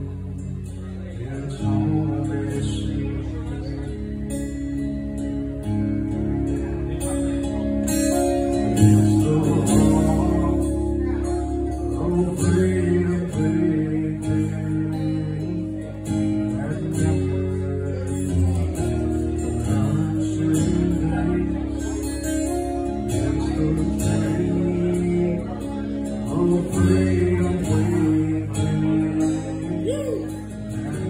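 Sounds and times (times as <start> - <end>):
acoustic guitar chords: 0.0 - 31.0
person singing: 26.2 - 31.0.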